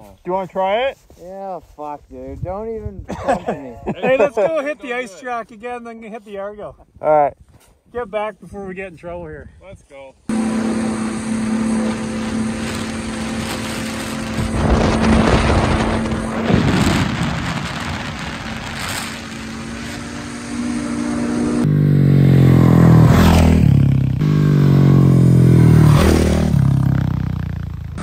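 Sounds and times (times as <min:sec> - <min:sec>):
rushing noise: 0:10.3 - 0:21.7
dirt bike engine revving: 0:10.3 - 0:28.0
snowmobile engine running: 0:10.3 - 0:28.0.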